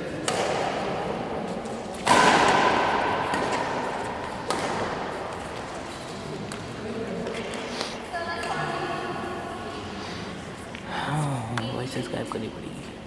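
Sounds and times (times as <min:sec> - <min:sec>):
rackets hitting shuttlecock: 0:00.0 - 0:07.7.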